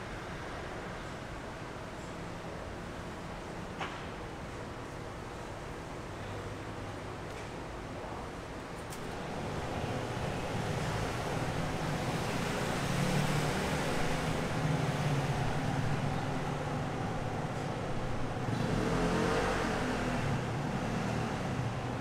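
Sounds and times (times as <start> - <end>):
passing vehicles hum: 8.9 - 22.0.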